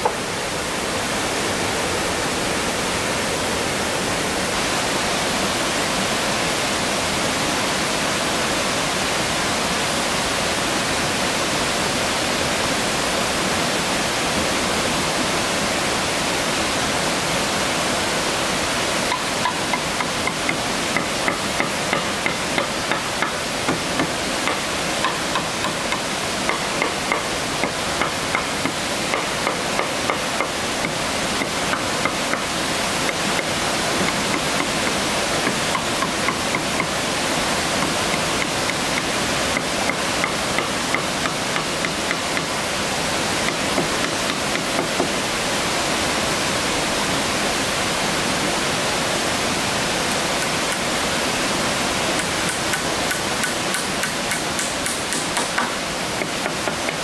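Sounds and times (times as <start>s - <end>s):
steady rushing hiss: 0.0s - 57.0s
hammer blows on wood: 52.2s - 57.0s.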